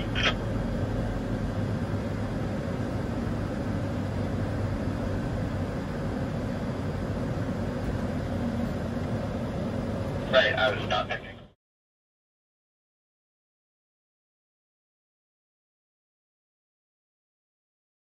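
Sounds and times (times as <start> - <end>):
combine harvester hum from cab: 0.0 - 11.6.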